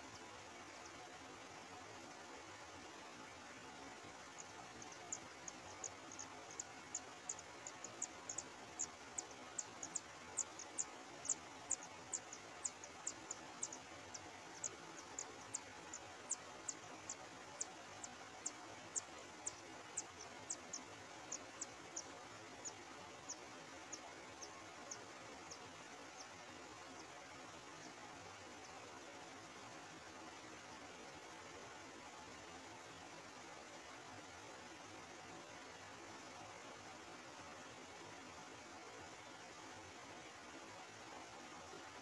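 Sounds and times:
nestlings peeping: 0:04.2 - 0:28.0.

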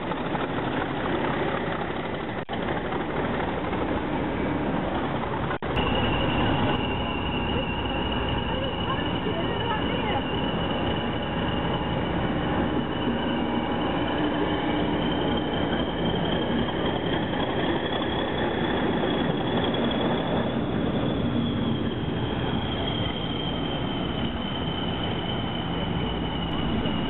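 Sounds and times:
diesel locomotive engine rumble: 0:00.0 - 0:27.0
turbocharger whistle: 0:05.7 - 0:16.1, 0:17.6 - 0:27.0.

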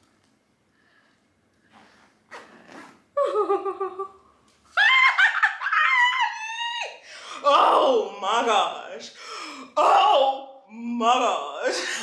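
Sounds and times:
woman laughing and squealing: 0:03.2 - 0:07.0
woman gasping: 0:07.0 - 0:07.5.

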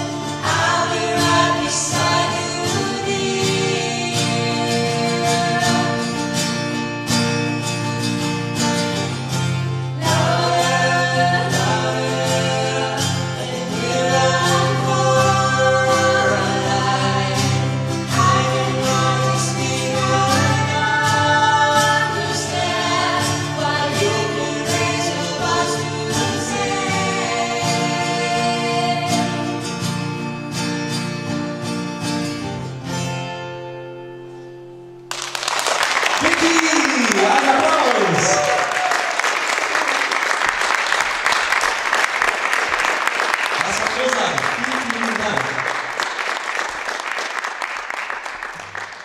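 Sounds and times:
acoustic guitars strummed: 0:00.0 - 0:35.3
woman and man singing: 0:00.3 - 0:06.4, 0:10.0 - 0:29.5
applause: 0:35.1 - 0:49.0.

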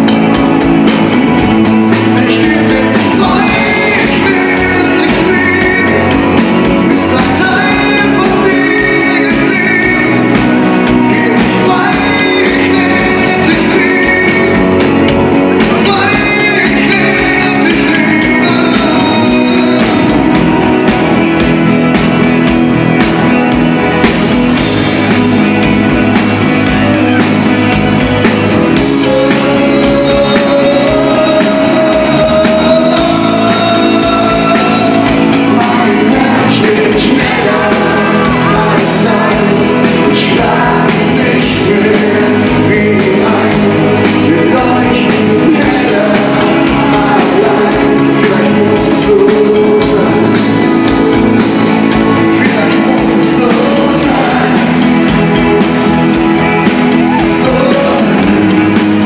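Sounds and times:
acoustic guitar: 0:00.0 - 0:59.0
drums: 0:00.0 - 0:59.0
keyboard: 0:00.0 - 0:59.0
man singing: 0:00.0 - 0:59.0.

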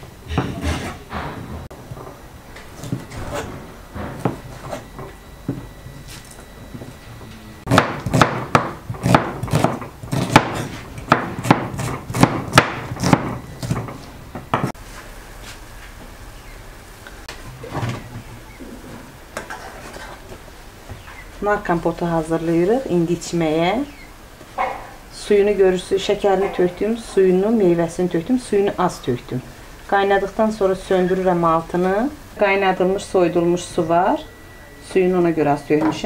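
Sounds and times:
knife chopping on wooden board: 0:07.7 - 0:13.8.

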